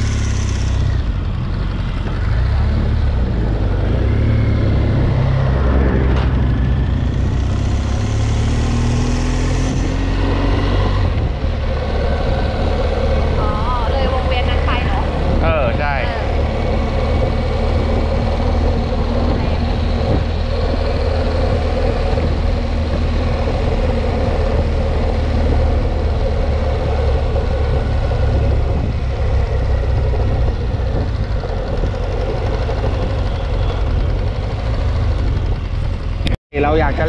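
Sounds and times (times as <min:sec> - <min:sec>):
motorcycle engine rumble: 0:00.0 - 0:37.0
wind: 0:00.0 - 0:37.0.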